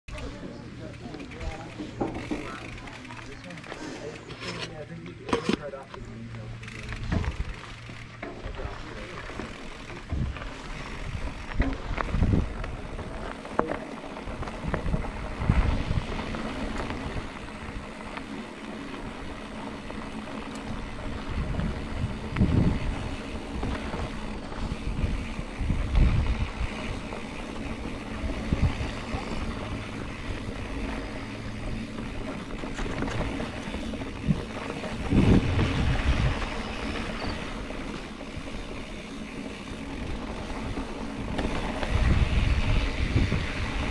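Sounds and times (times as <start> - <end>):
bike thudding over bumps: 0.1 - 5.8, 6.4 - 43.9
bike rattling: 0.1 - 43.9
tyres crunching over stones: 6.8 - 42.6
wind on microphone: 10.1 - 12.7, 14.5 - 17.3, 21.1 - 27.0, 28.2 - 30.4, 34.1 - 37.3, 41.8 - 43.9.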